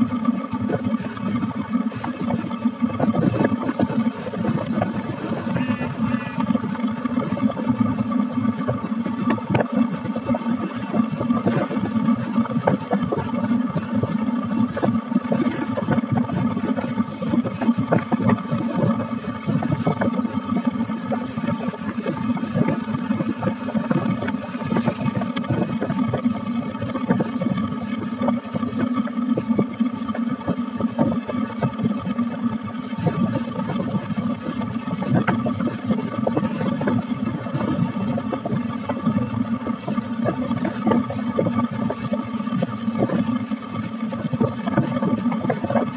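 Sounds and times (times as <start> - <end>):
engine hum: 0.0 - 45.9.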